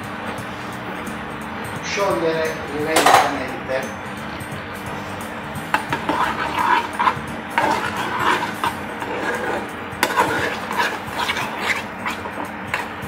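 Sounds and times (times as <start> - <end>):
spoon scraping saucepan: 4.9 - 13.0.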